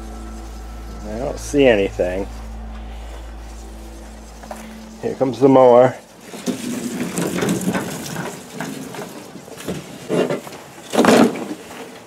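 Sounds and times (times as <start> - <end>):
lawn mower rattling and scraping: 6.2 - 12.0.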